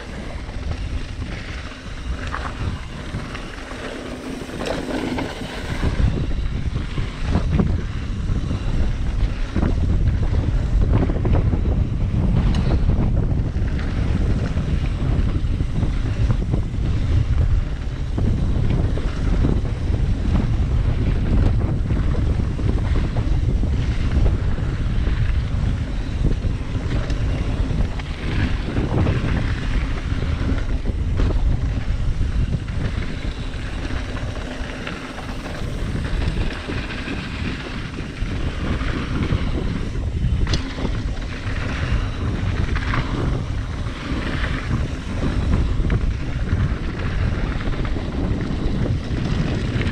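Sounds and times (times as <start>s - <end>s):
tyres rolling over dirt and rock: 0.0s - 7.3s, 26.7s - 49.9s
bike rattling over bumps: 0.0s - 49.9s
wind buffeting microphone: 0.0s - 49.9s.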